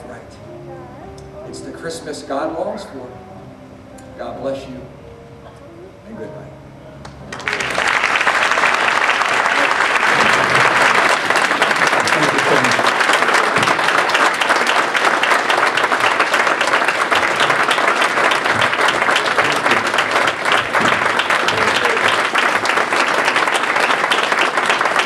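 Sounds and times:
audience applauding: 7.0 - 25.0.

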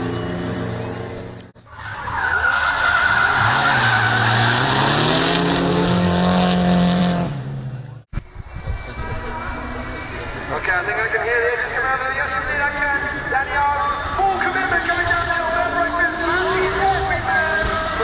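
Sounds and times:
tyres squealing: 1.7 - 5.5
car engines at high revs: 2.6 - 8.1.

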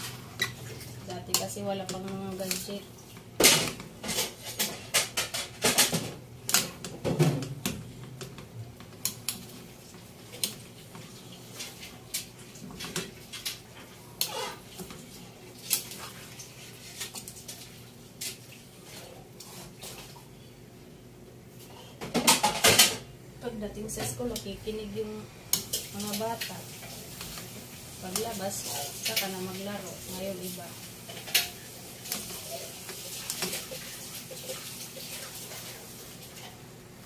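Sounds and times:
metal pots and utensils clinking: 31.0 - 34.6.

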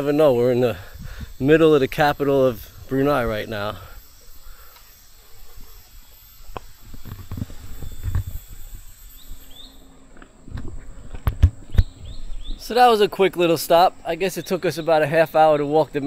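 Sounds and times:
high-pitched insect drone: 0.0 - 16.0
low wind rumble: 0.7 - 3.9, 10.4 - 12.7
bird chirping: 8.9 - 10.0, 11.6 - 13.2.

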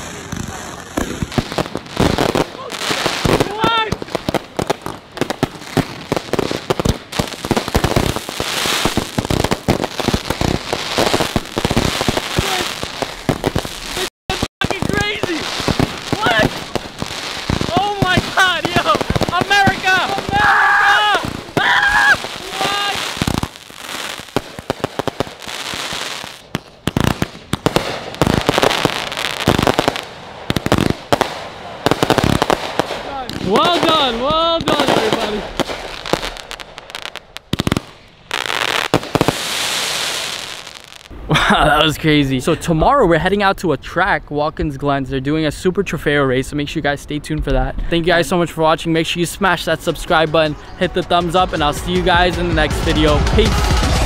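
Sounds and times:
fireworks bangs and pops: 0.0 - 41.4, 51.1 - 54.0
fireworks crackling hiss: 0.0 - 41.5.

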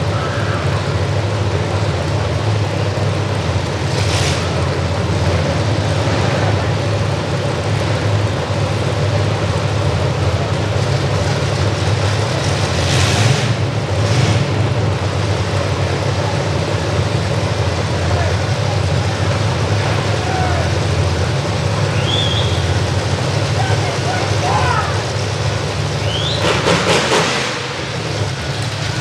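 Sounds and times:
truck engines running loudly: 0.0 - 29.0.

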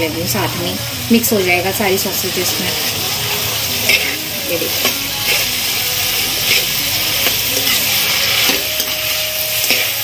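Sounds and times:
food sizzling in wok: 0.0 - 10.0
metal spatula scraping wok: 2.0 - 10.0.

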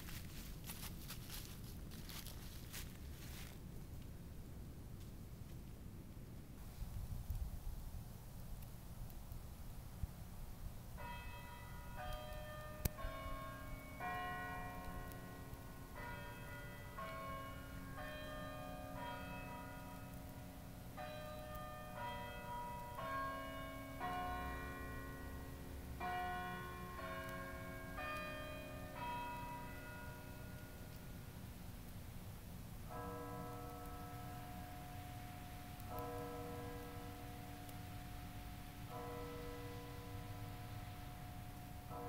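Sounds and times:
bells chiming a slow melody: 11.0 - 31.3, 32.9 - 42.0.

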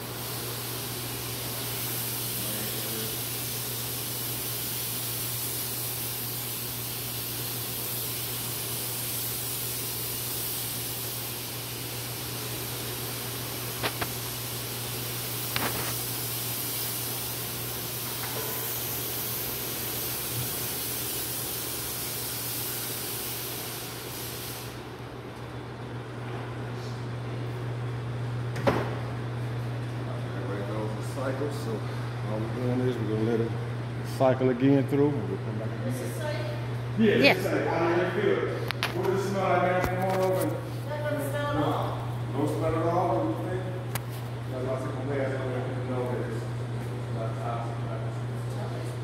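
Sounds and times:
fogger spraying hiss: 0.0 - 24.9.

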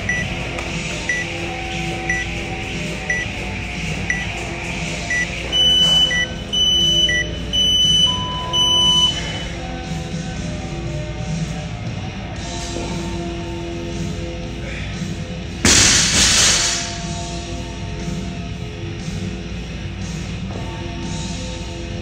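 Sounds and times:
background music: 0.0 - 22.0
long loud timer beeps: 0.1 - 0.3, 1.1 - 1.3, 2.1 - 2.3, 3.1 - 3.3, 4.1 - 4.3, 5.1 - 9.5
short high timer beeps: 5.1 - 9.4.

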